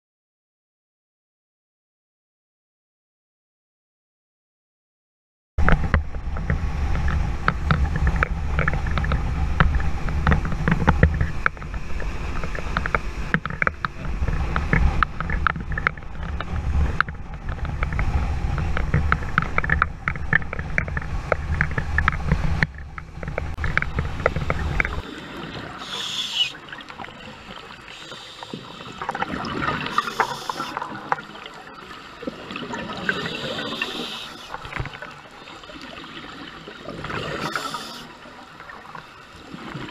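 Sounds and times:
boat engine low rumble: 5.6s - 36.6s
underwater bubbles gurgling: 5.6s - 39.9s.

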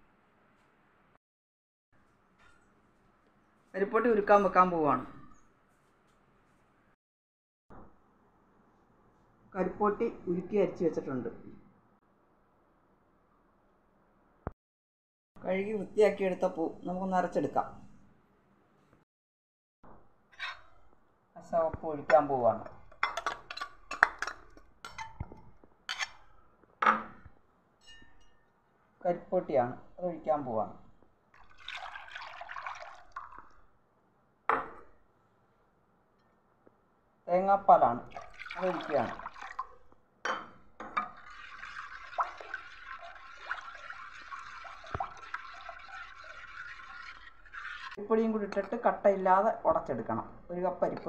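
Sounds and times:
liquid splashing into metal vessel: 31.4s - 33.6s, 38.1s - 39.9s, 40.8s - 48.0s
spoon stirring sloshing liquid: 31.4s - 33.6s, 38.0s - 39.9s, 41.0s - 48.0s.

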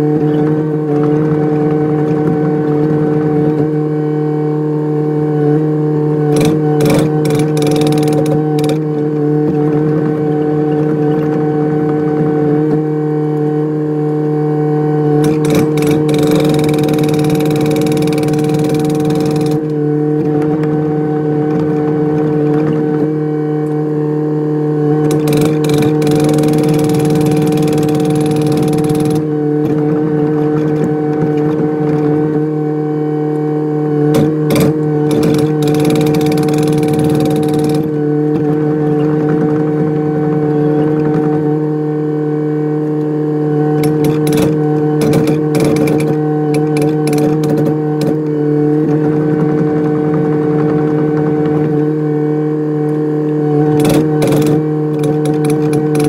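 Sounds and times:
knocks and clanks of working gear: 6.4s - 9.0s, 15.2s - 20.8s, 25.0s - 32.2s, 34.1s - 39.7s, 43.8s - 48.3s, 53.7s - 56.0s
excavator diesel engine running: 15.2s - 19.8s, 25.0s - 32.4s, 34.1s - 38.0s.

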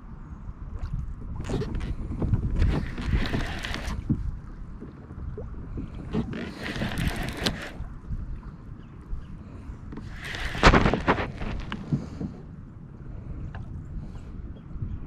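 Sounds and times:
wind buffeting microphone: 0.0s - 15.0s
water splashing against boat hull: 0.8s - 8.3s, 9.8s - 12.6s.

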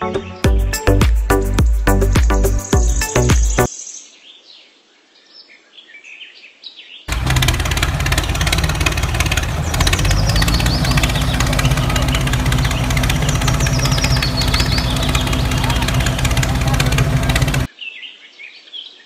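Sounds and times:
background music: 0.0s - 3.7s
birds chirping: 1.9s - 19.0s
tractor engine running: 7.1s - 17.7s.

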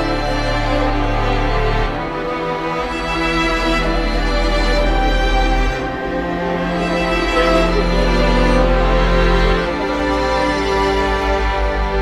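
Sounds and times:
music of sustained notes: 0.0s - 12.0s.

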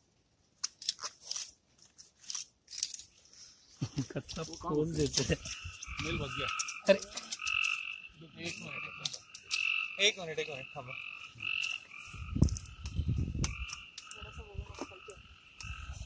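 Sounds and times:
chorus of frogs calling: 4.6s - 16.0s.

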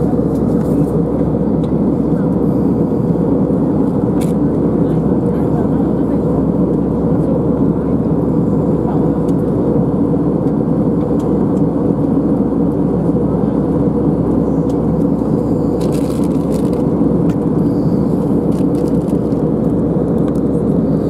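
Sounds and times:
jet airliner cabin drone: 0.0s - 21.0s.

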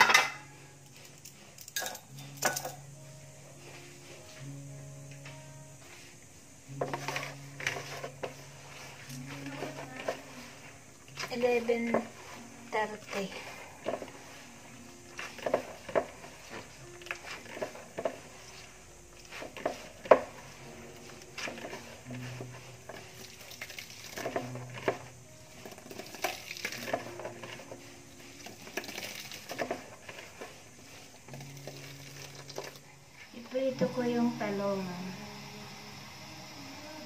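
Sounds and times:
hands squelching wet coconut: 25.7s - 32.8s.

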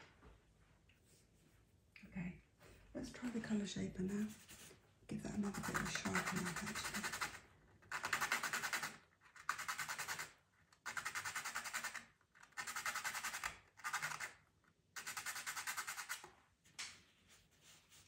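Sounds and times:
pencil sharpening scraping: 5.3s - 14.4s, 15.0s - 16.3s.

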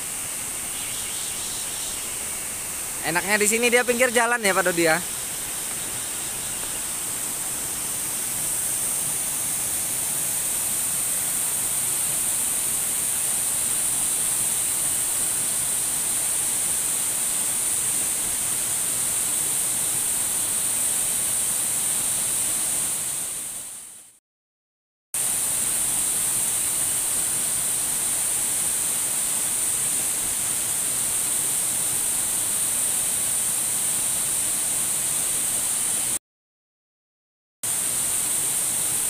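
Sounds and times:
waterfall rushing into pool: 0.0s - 23.8s, 25.2s - 36.2s, 37.7s - 39.0s.

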